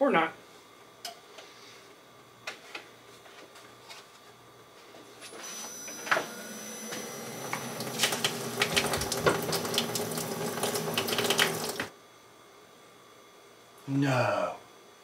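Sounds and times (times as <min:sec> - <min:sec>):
water hissing through pipes: 0:06.8 - 0:11.9.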